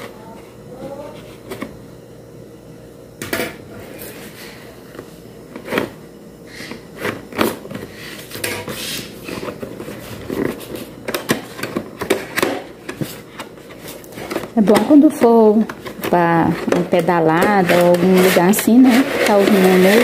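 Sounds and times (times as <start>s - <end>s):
cardboard box scraping and tapping: 16.0s - 20.0s.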